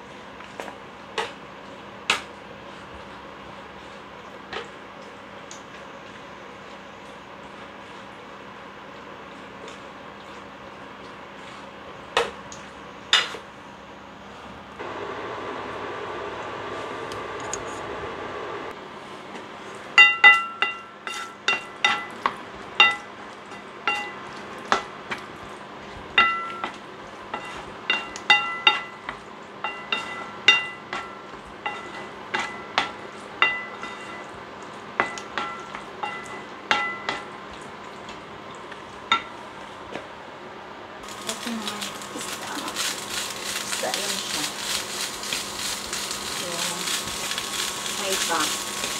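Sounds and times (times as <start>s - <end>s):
spatula knocking against pan: 35.0s - 37.3s.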